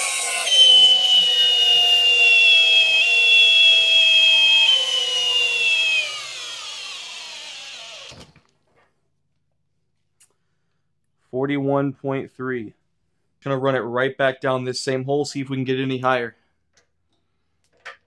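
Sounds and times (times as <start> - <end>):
cordless drill whining: 0.0 - 8.4.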